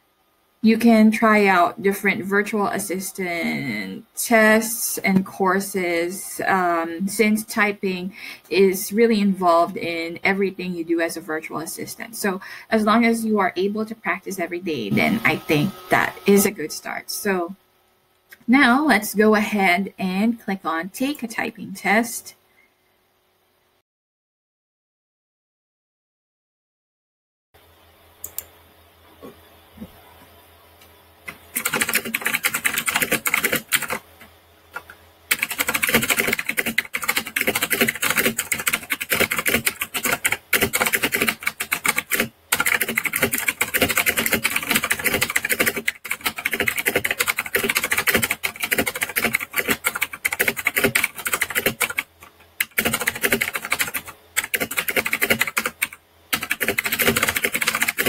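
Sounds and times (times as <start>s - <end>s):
fast typing on computer keyboard: 31.5s - 34.0s, 34.8s - 58.0s.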